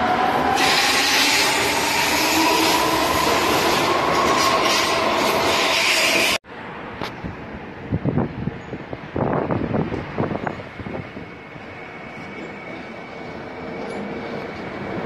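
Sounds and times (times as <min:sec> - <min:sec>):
electric train passing: 0:00.0 - 0:15.0
faint wind noise: 0:06.6 - 0:15.0.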